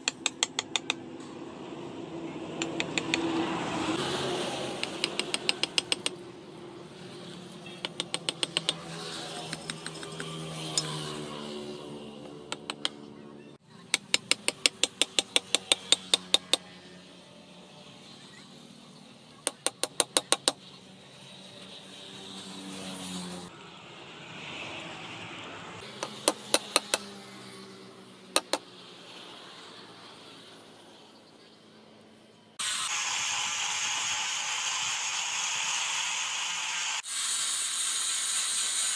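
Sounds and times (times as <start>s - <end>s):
sharp metallic taps: 0.0s - 1.3s, 2.6s - 3.3s, 4.8s - 6.2s, 7.8s - 8.8s, 9.5s - 10.9s, 12.2s - 13.1s, 13.9s - 16.7s, 19.4s - 20.6s, 26.0s - 27.0s, 28.4s - 28.6s.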